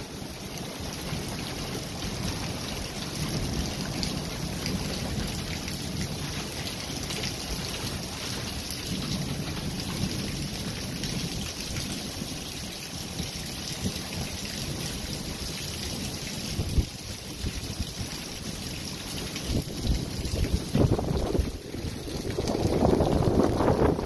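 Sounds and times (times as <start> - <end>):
wind buffeting microphone: 19.4 - 24.0
strong wind blowing: 19.5 - 24.0.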